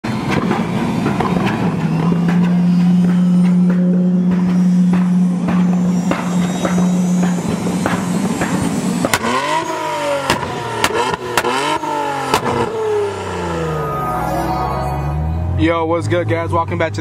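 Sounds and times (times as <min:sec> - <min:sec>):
steady low drone: 0:00.1 - 0:09.2, 0:09.8 - 0:16.8
car engine revving: 0:00.1 - 0:17.0
exhaust pops and cracks: 0:00.2 - 0:12.8.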